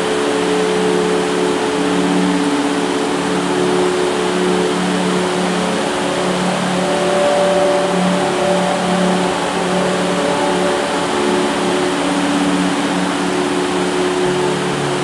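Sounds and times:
heavy rain on a metal roof: 0:00.0 - 0:15.0
low humming tones: 0:00.0 - 0:15.0
higher tone: 0:03.3 - 0:15.0.

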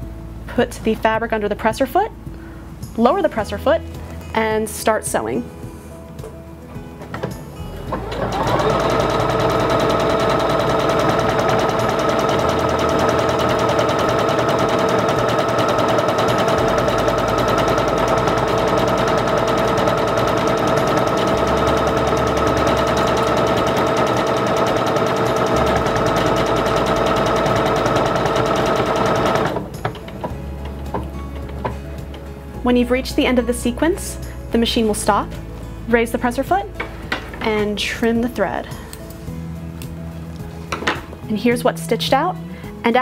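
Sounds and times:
sewing machine stitching: 0:07.8 - 0:32.2.

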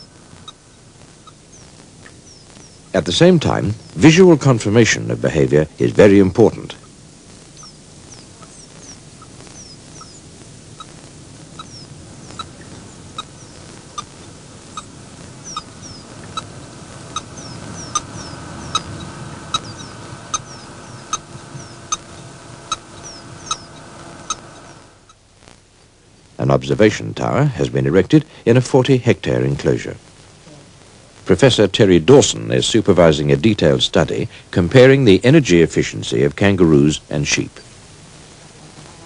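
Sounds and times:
steady hiss: 0:00.0 - 0:39.0
high falling chirps: 0:07.5 - 0:25.2.

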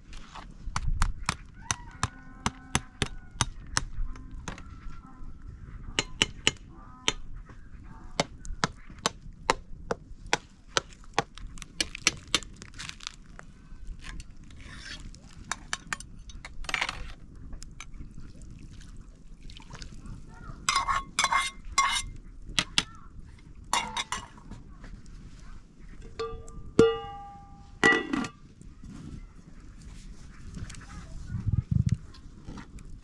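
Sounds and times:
wood fire crackling and popping: 0:08.2 - 0:18.5.

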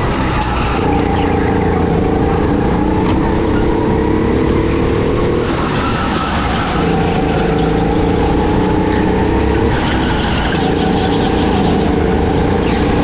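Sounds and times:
go-kart engine running: 0:00.0 - 0:13.0.

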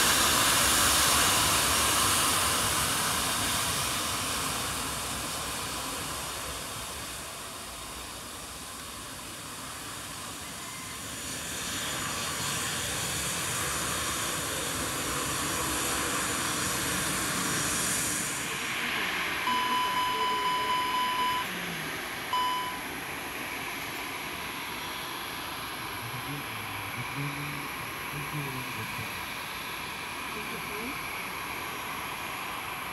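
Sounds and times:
jet engines whining: 0:00.0 - 0:32.9
pulsing electronic beep: 0:19.5 - 0:21.5, 0:22.3 - 0:22.8.

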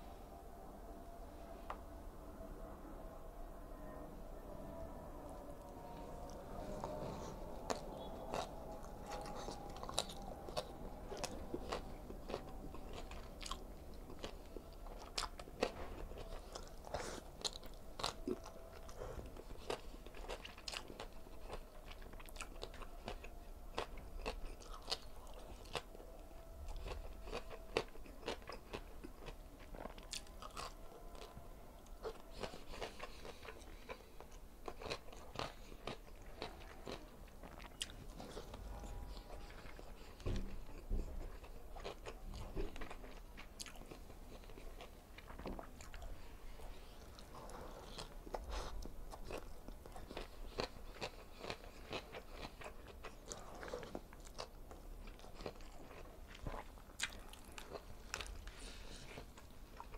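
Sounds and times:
man chewing wet mouth sounds: 0:05.3 - 0:59.9.

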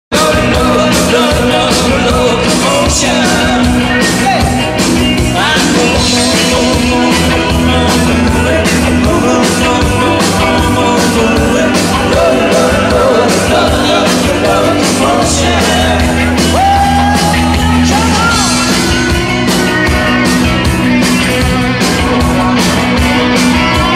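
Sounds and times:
men singing: 0:00.1 - 0:04.2, 0:05.2 - 0:19.0
bass guitar: 0:00.1 - 0:23.9
electric guitars: 0:00.1 - 0:23.9
steady drum beat: 0:00.1 - 0:23.9.

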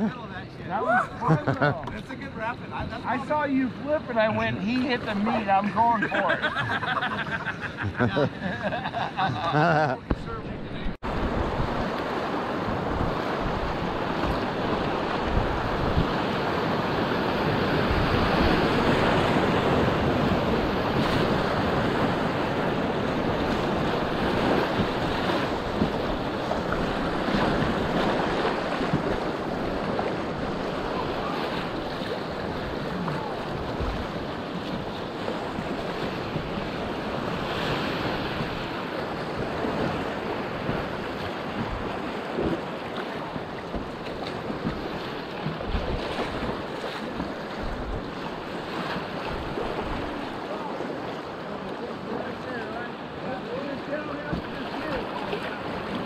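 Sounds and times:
wind buffeting microphone: 0:10.1 - 0:50.2
faint paddle splashes: 0:18.0 - 0:56.0.

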